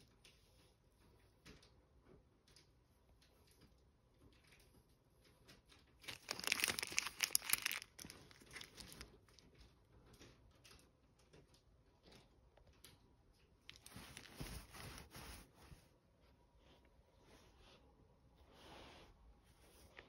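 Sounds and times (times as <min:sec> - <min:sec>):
sticky roller on blanket: 0:13.7 - 0:15.9.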